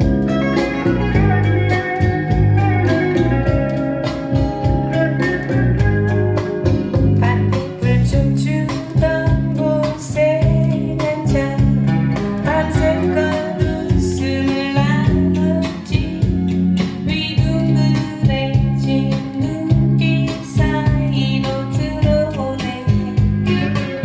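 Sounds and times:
guitar and bass: 0.0s - 24.0s
woman singing slow blues: 7.2s - 16.3s, 17.0s - 23.2s.

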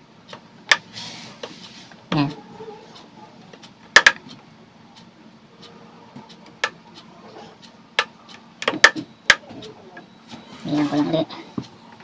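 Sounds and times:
wire clicking and ticking: 2.9s - 4.4s.

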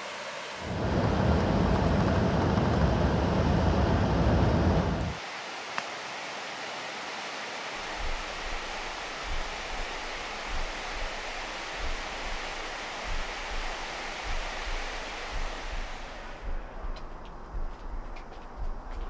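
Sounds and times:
steady rushing noise: 0.0s - 19.0s
soft low thuds: 9.3s - 19.0s.

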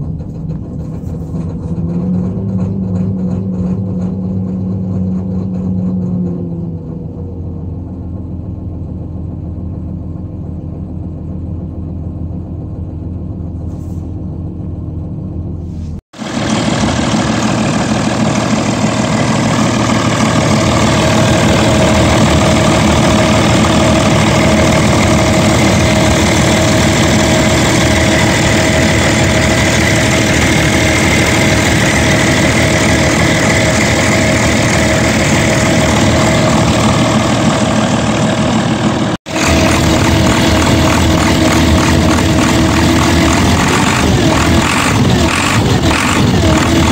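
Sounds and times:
diesel excavator engine running: 0.0s - 46.9s
steady high tone: 16.2s - 46.9s.

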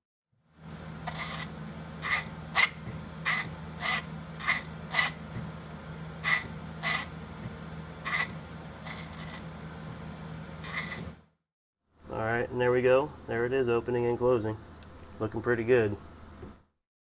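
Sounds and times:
steady low hum: 0.4s - 11.4s.

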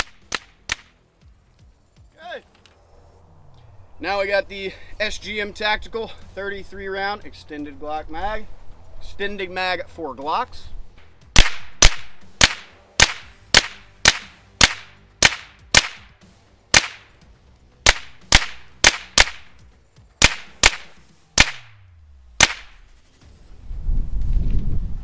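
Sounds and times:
gunshots with echo: 11.4s - 16.1s, 16.7s - 17.1s, 17.9s - 19.5s, 20.2s - 21.8s, 22.4s - 22.8s.

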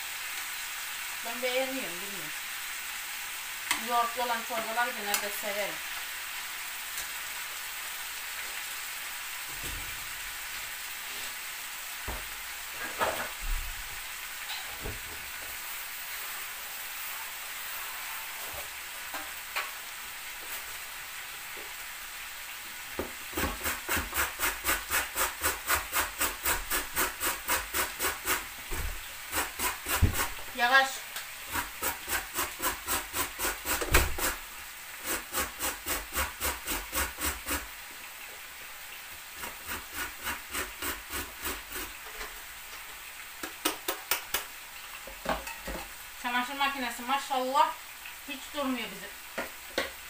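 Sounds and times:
food sizzling in oil: 0.0s - 50.0s
carrot grated on metal grater: 23.4s - 28.4s, 29.3s - 30.4s, 31.5s - 34.4s, 35.0s - 37.7s, 39.4s - 41.9s.

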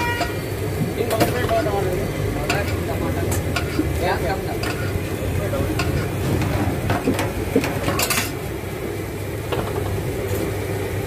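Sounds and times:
metal spatula scraping griddle: 2.4s - 8.4s.

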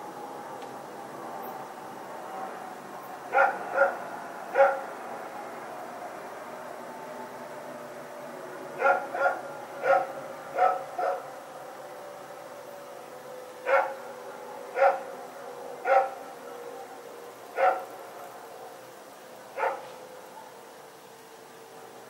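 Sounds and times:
dog barking: 3.3s - 4.9s, 8.8s - 11.3s, 13.6s - 14.0s, 14.8s - 15.1s, 15.8s - 16.2s, 17.6s - 17.9s, 19.6s - 20.7s.

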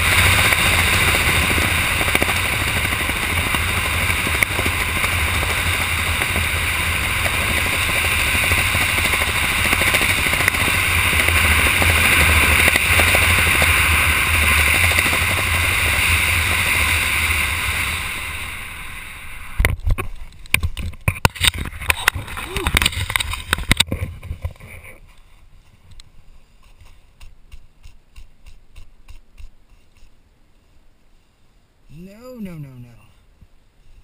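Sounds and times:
wind rushing over microphone: 0.0s - 24.7s
sharp knocks and rustles: 19.6s - 30.8s.

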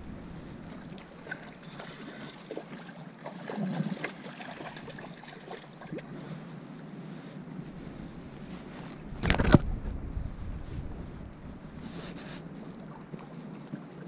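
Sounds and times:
water splashing: 0.0s - 6.3s.

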